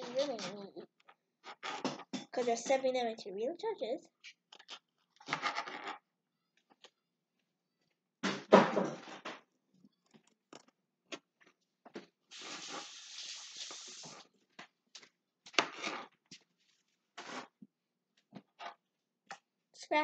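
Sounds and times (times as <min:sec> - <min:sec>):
steady hiss: 0:12.3 - 0:14.2.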